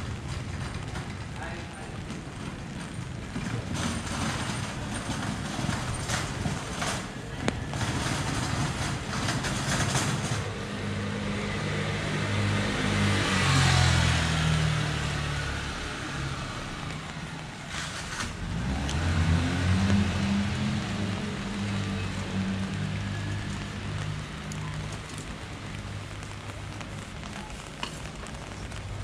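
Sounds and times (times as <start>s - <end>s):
tyres hissing on wet road: 3.8s - 29.0s
approaching car engine: 7.7s - 26.4s.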